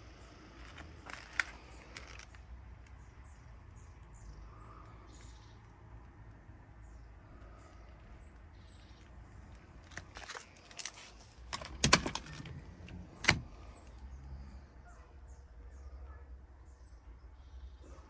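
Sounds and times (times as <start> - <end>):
seat release clicks: 11.5 - 13.5
seatback unlatching clunks: 11.5 - 13.5.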